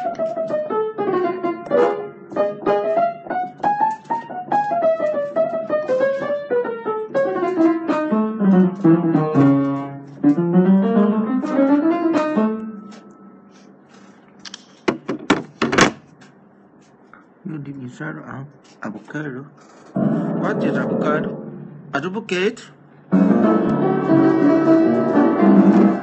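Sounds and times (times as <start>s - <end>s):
piano music: 0.0s - 13.9s, 20.0s - 26.0s.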